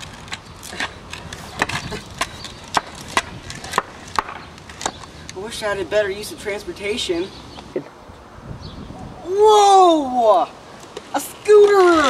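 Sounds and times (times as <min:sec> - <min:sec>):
skateboard clacking on concrete: 0:00.0 - 0:05.4.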